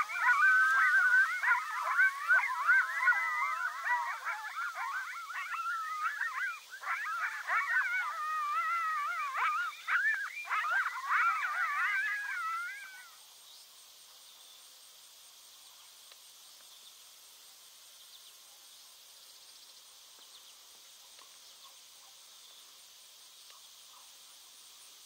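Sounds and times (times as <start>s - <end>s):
coyotes yipping and howling: 0.0s - 13.2s
faint insect trill: 0.0s - 25.0s.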